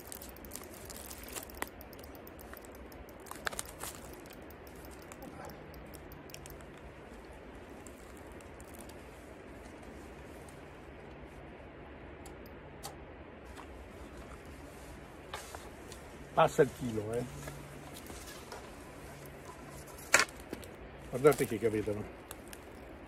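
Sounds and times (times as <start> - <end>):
fishing reel clicking: 0.0 - 6.6
low background hiss: 0.0 - 23.0.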